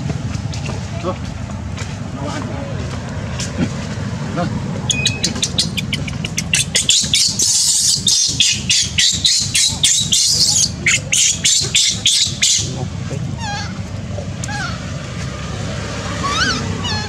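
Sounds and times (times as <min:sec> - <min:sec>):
baby monkey screaming: 0:04.9 - 0:12.7, 0:13.4 - 0:13.8, 0:14.4 - 0:14.8, 0:16.2 - 0:17.0.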